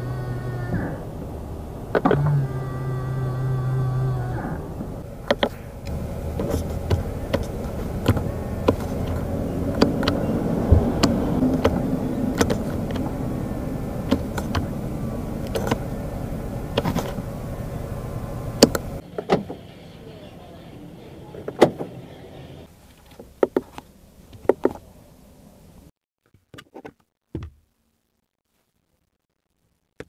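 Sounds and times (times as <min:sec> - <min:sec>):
power window motor hum: 0:00.0 - 0:19.0.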